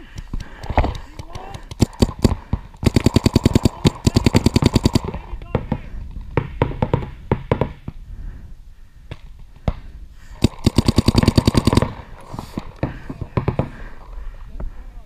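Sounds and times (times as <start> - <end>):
paintball markers firing: 0.0 - 5.7, 10.4 - 13.7.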